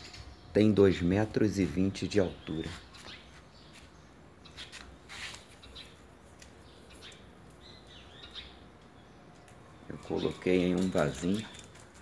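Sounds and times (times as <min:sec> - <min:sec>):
low background hum: 0:00.0 - 0:12.0
faint high bird chirps: 0:06.6 - 0:11.7.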